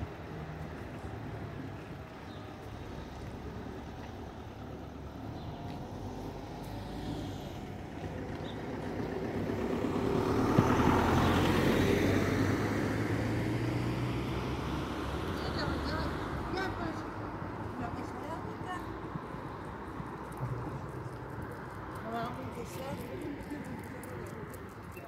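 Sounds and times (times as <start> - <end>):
vehicle passing close by: 4.9 - 24.9.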